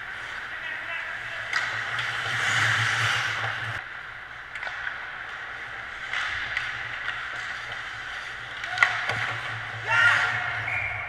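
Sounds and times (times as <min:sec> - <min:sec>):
low arena hum: 0:00.0 - 0:11.0
skate scraping ice: 0:00.0 - 0:11.0
stick or puck clacks: 0:01.4 - 0:03.8, 0:04.4 - 0:10.5.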